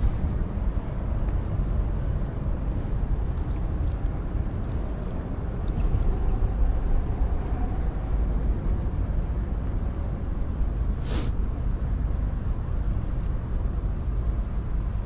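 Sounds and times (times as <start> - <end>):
low outdoor rumble: 0.0 - 15.0
brief hiss: 11.0 - 11.4.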